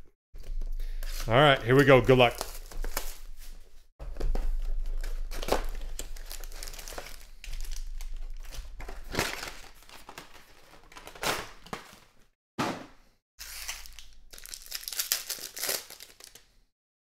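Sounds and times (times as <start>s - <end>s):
foil card packs crinkling: 0.9s - 3.3s, 4.2s - 12.2s, 13.4s - 16.5s.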